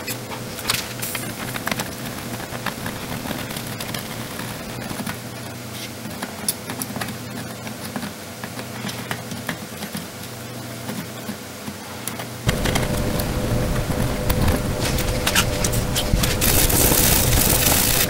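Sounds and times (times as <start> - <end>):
low hum: 0.0 - 5.0, 12.5 - 18.0
soldering iron sizzling: 0.0 - 5.1, 12.5 - 18.0.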